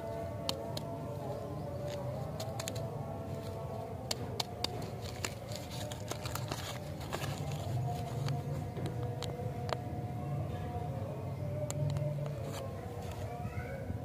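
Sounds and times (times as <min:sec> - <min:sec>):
paper candy wrapper crinkling: 0:00.4 - 0:09.4.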